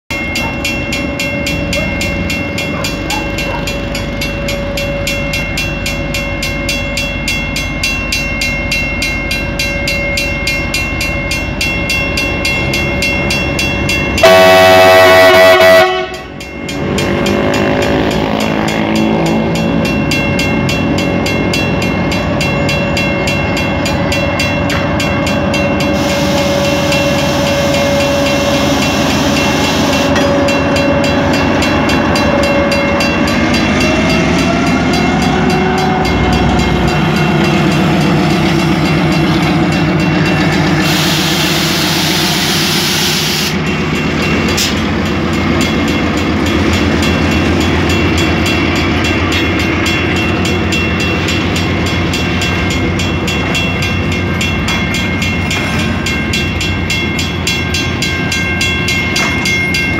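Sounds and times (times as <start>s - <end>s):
diesel locomotive passing: 0.1s - 59.9s
locomotive horn blast: 14.2s - 16.4s, 25.9s - 31.4s, 40.8s - 43.6s.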